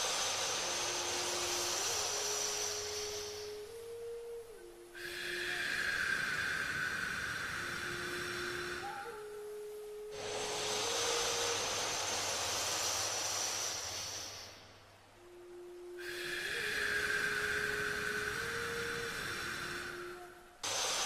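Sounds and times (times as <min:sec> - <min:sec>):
slow breathing through nose: 0:00.0 - 0:04.0, 0:05.0 - 0:09.2, 0:10.1 - 0:14.9, 0:16.0 - 0:21.0
soft sustained tone: 0:00.0 - 0:21.0.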